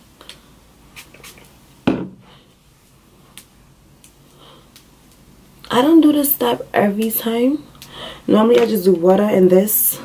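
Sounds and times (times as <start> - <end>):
loud thump: 1.9 - 2.2.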